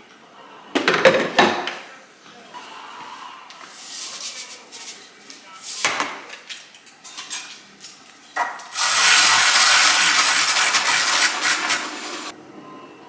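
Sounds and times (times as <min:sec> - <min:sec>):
milk frother whirring: 0:08.8 - 0:12.3.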